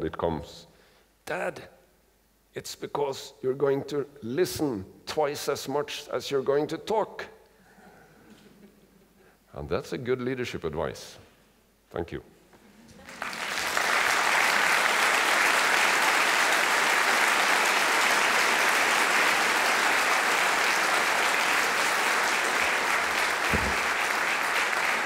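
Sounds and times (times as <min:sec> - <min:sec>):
audience applauding: 0:13.0 - 0:25.0.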